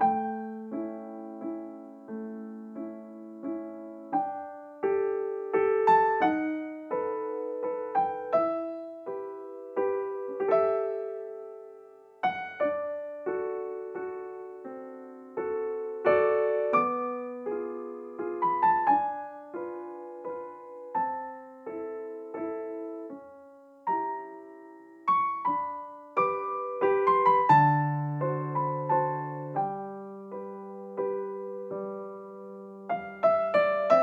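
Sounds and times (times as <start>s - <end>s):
piano music: 0.0s - 34.0s.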